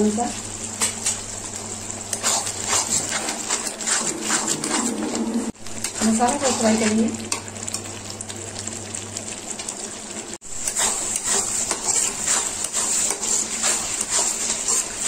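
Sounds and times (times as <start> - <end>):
masala sizzling in a pan: 0.0 - 15.0
spatula stirring and scraping: 2.0 - 7.8, 10.4 - 15.0.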